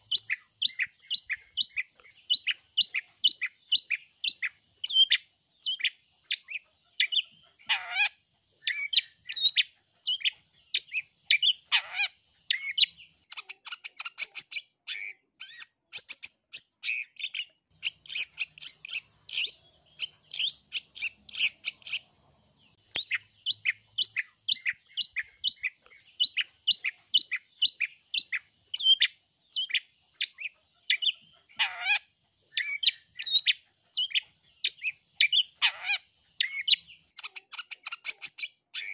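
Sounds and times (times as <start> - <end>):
bird chirping notes: 15.4 - 38.9.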